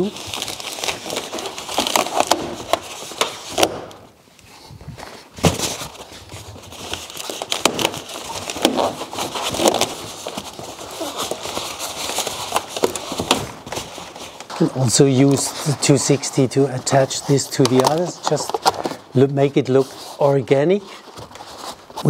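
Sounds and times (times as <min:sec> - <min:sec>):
balloon handling noise: 0:00.0 - 0:22.0
balloons rubbing and crackling: 0:00.0 - 0:22.0.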